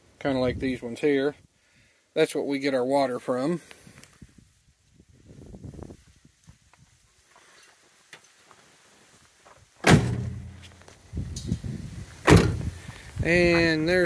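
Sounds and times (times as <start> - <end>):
van doors slamming shut: 9.8 - 10.7, 12.2 - 12.7.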